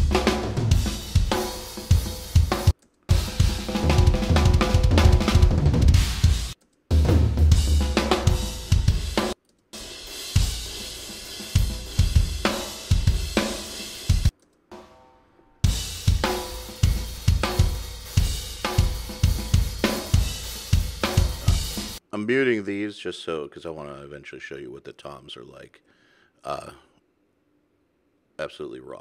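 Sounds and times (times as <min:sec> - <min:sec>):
fast kick drums: 0:00.0 - 0:09.4, 0:10.3 - 0:14.3, 0:15.7 - 0:22.0
snare drum: 0:00.0 - 0:14.9, 0:15.9 - 0:22.0
cymbals and hi-hat: 0:00.0 - 0:15.0, 0:15.6 - 0:22.0.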